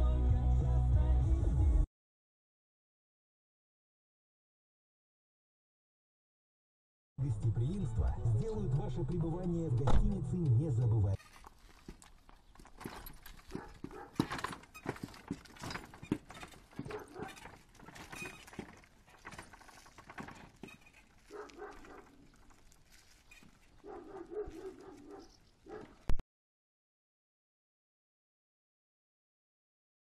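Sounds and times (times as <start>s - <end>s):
horse hooves on pavement: 11.4s - 26.1s.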